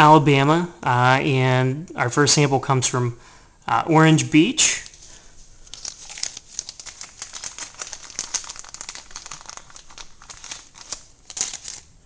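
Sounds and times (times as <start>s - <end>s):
crinkling and crackling: 4.7s - 12.0s.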